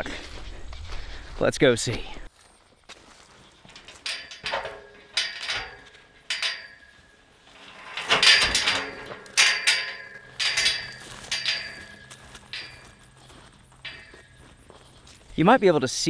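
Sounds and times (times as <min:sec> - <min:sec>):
metal gate clanking and ringing: 0:03.7 - 0:15.0.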